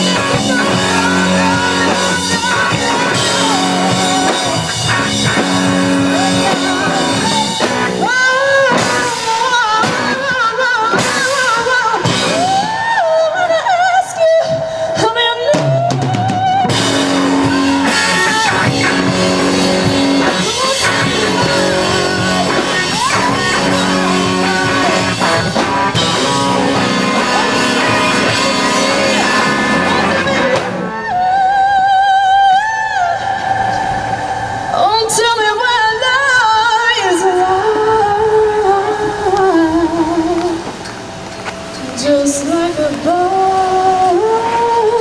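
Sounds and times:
live blues-rock band: 0.0 - 31.5
lead guitar line with vibrato: 0.0 - 45.0.

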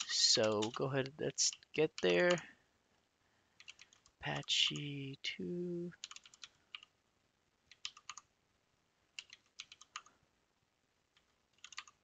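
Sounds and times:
keyboard typing: 0.0 - 2.4, 3.6 - 4.9, 6.0 - 6.9, 7.7 - 8.3, 9.2 - 10.2, 11.1 - 12.0.

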